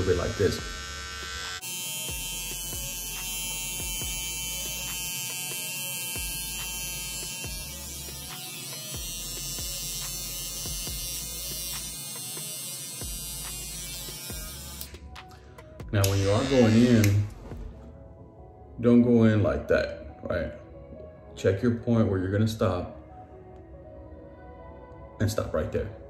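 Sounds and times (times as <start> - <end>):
electric hair trimmer buzzing: 0.0 - 15.1, 16.0 - 17.4.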